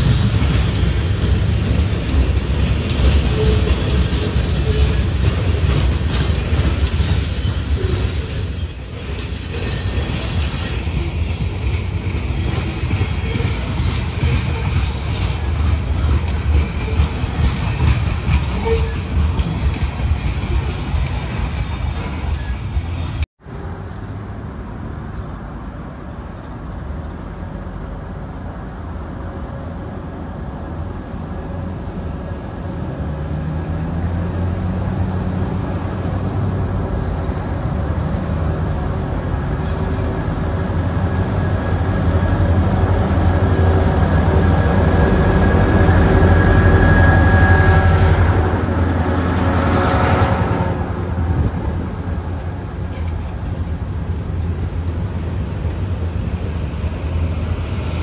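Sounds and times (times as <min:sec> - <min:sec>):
diesel locomotive engine rumble: 0:00.0 - 0:58.0
freight cars rolling on rails: 0:00.0 - 0:58.0
thin high-pitched squeal: 0:45.0 - 0:48.7.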